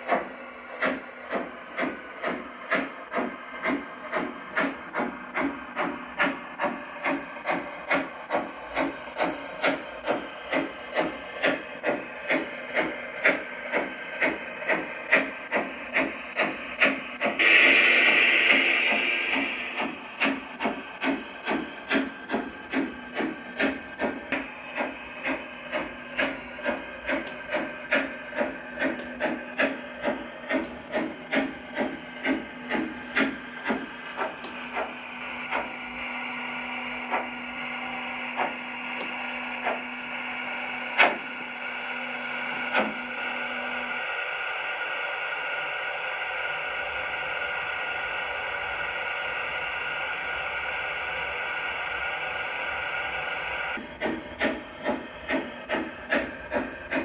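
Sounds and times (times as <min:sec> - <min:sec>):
model steam locomotive chuffing: 0:00.0 - 0:57.0
steam hissing: 0:00.0 - 0:57.0.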